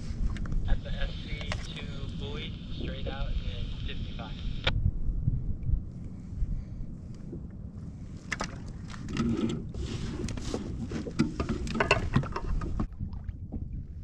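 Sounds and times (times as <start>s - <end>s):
wind rumble on microphone: 0.0s - 14.0s
fish clicking and knocking on rod: 1.4s - 1.7s, 8.2s - 12.9s.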